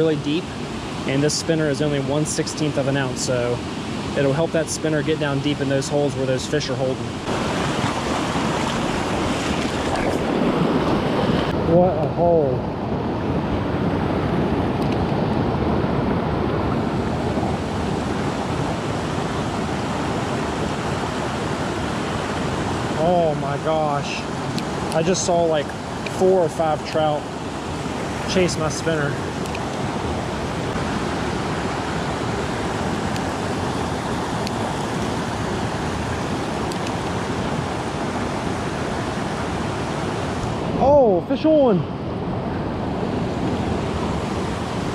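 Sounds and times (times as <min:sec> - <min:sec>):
creek water rushing: 0:00.0 - 0:44.9
creek running over rocks: 0:04.2 - 0:11.0.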